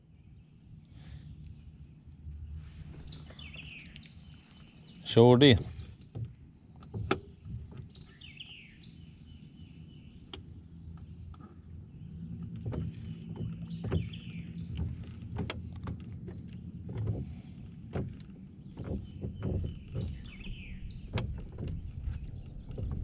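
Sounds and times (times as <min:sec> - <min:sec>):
low steady hum: 0:00.0 - 0:23.0
knocks against boat hull: 0:05.4 - 0:08.1, 0:12.5 - 0:23.0.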